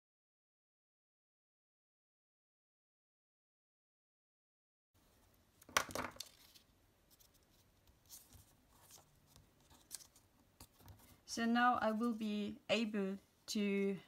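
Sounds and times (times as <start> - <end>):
paper rustling: 5.6 - 11.2.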